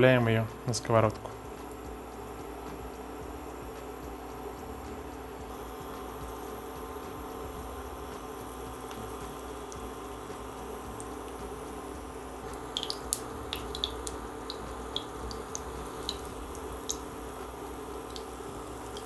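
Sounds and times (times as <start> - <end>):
batter sizzling in hot oil: 0.3 - 19.0
sharp crackling pops: 12.4 - 17.1.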